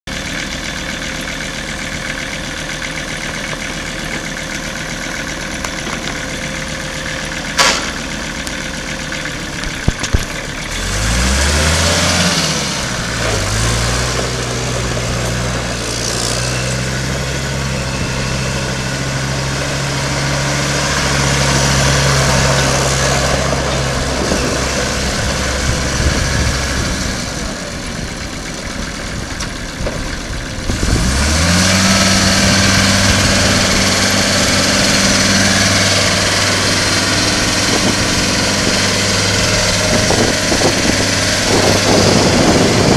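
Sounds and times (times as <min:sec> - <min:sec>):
tractor diesel engine running: 0:00.0 - 0:42.9.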